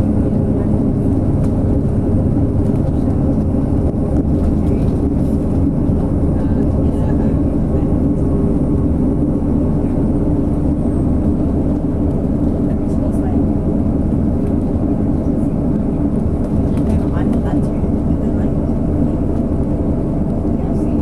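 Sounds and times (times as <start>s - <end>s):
coach engine and tyre rumble: 0.0s - 21.0s.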